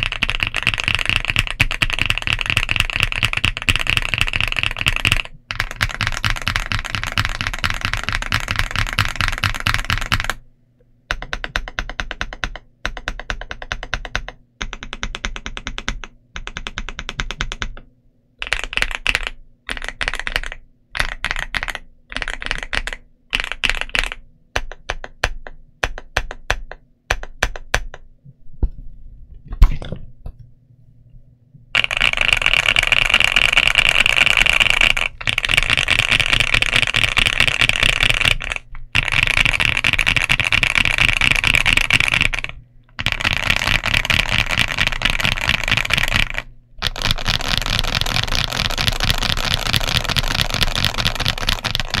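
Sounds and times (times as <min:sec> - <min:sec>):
fast keyboard typing: 0:00.0 - 0:10.4, 0:11.1 - 0:28.0, 0:31.8 - 0:52.0
mechanical keyboard key presses: 0:00.0 - 0:10.4, 0:11.1 - 0:17.8, 0:18.4 - 0:28.0, 0:34.0 - 0:52.0
keyboard knock: 0:11.1 - 0:17.8, 0:24.6 - 0:28.8.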